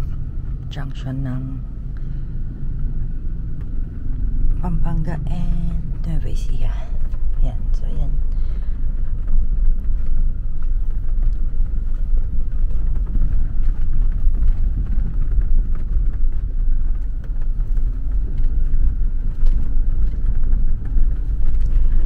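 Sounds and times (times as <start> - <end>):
car road and engine rumble: 0.0 - 22.0.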